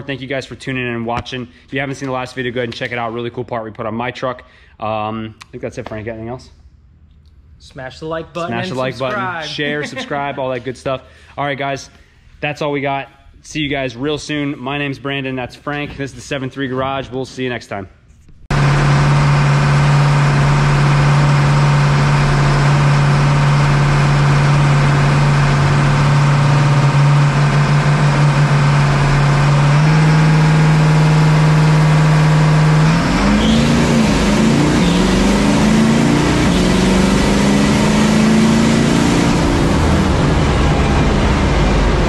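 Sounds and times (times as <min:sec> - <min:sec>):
diesel truck engine revving: 0:18.5 - 0:42.0.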